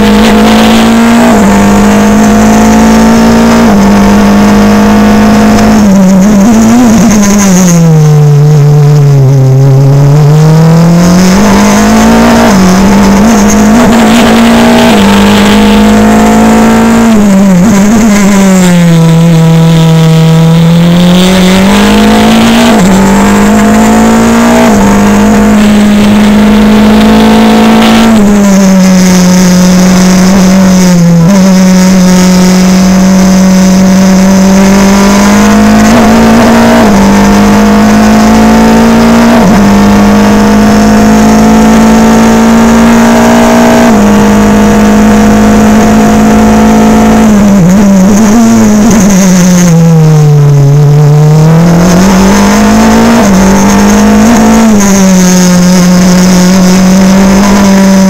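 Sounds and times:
racing car engine at high revs: 0:00.0 - 0:58.0.

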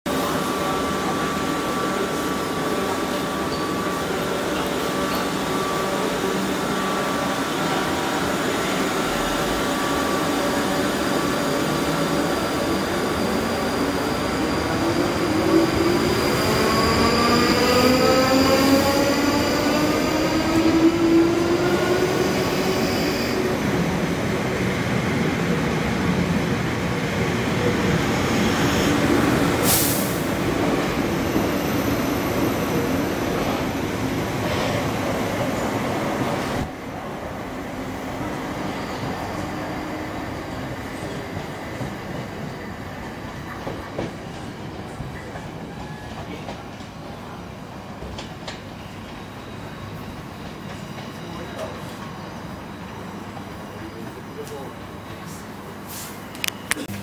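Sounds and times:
train wheels rumbling on rails: 0:37.8 - 0:52.2.

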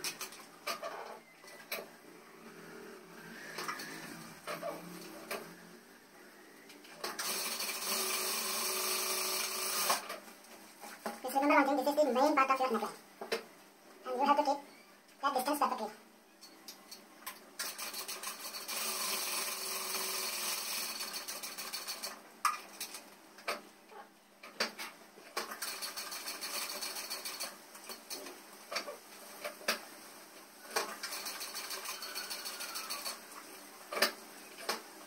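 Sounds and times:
sewing machine stitching: 0:07.0 - 0:10.2, 0:17.6 - 0:22.2, 0:25.4 - 0:28.3, 0:30.7 - 0:33.3.

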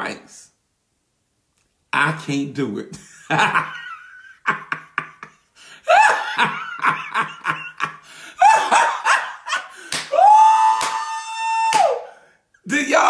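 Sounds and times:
man laughing heartily: 0:03.0 - 0:10.0.

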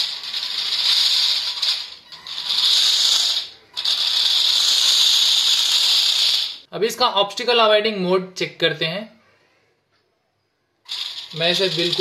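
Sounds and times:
robot motors rattling whir: 0:00.0 - 0:06.6, 0:10.9 - 0:12.0.

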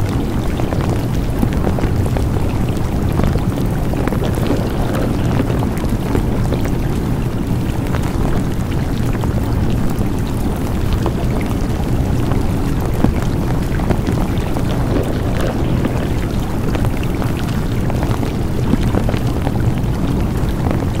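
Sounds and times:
small crackles: 0:00.0 - 0:21.0.

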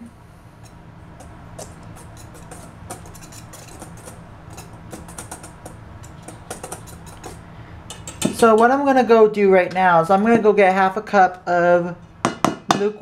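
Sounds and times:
whisk stirring flour in metal bowl: 0:01.6 - 0:08.4.

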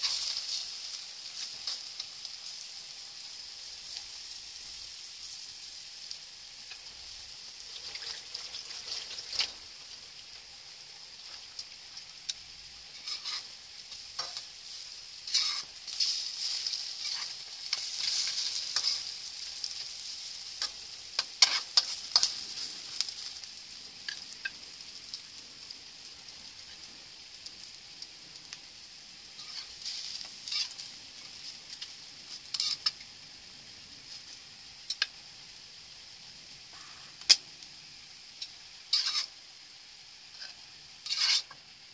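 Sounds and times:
bread sizzling in a wok: 0:00.0 - 0:41.9
metal spatula scraping a wok: 0:12.9 - 0:13.6, 0:14.2 - 0:19.8, 0:20.6 - 0:22.6, 0:29.4 - 0:30.9, 0:32.5 - 0:32.9, 0:38.9 - 0:39.4, 0:40.3 - 0:41.6.

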